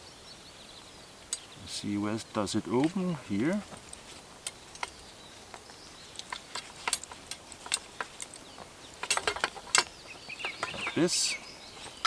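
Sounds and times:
leather cord rustling: 2.8 - 12.0.

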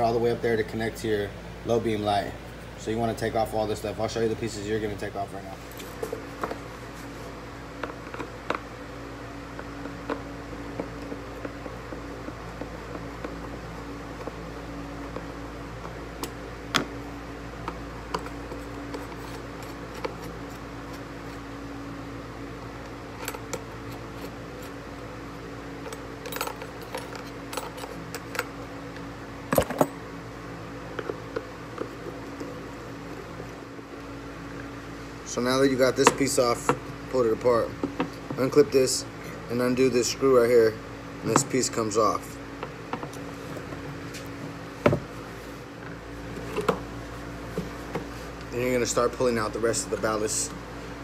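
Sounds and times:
steady background hum: 0.0 - 51.0.

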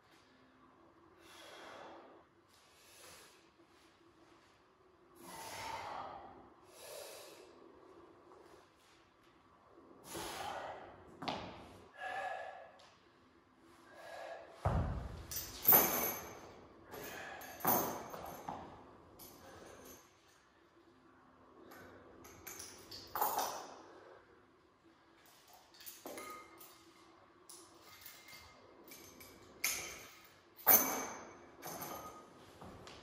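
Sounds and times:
person breathing hard: 1.2 - 3.6, 5.2 - 7.8, 10.0 - 11.1, 11.9 - 12.9, 13.8 - 14.7, 16.9 - 18.2
kettlebell thud on floor: 14.6 - 16.2
metal chain clinking: 14.9 - 20.3, 21.7 - 23.8, 25.2 - 32.4.

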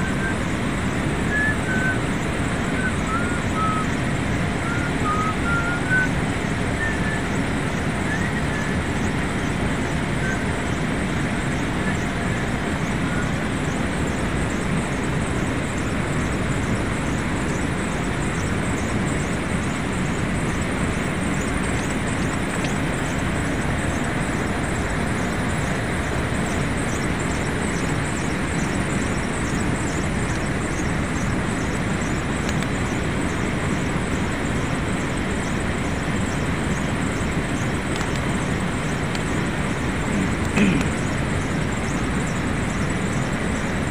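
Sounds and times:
cooling tower fan: 0.0 - 43.9.

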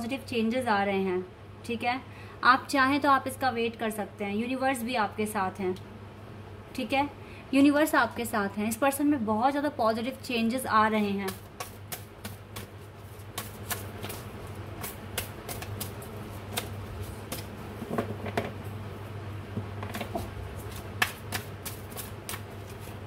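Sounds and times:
low steady hum: 0.0 - 23.0
cards being shuffled: 11.3 - 18.5, 19.8 - 23.0.

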